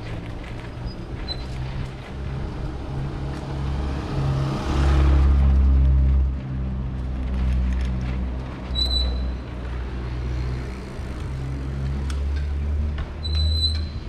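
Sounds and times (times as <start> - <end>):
street traffic rumble: 0.0 - 14.0.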